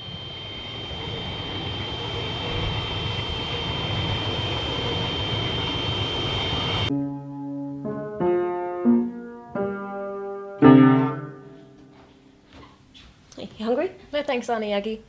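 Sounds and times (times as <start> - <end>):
electric train rumble: 0.0 - 6.9.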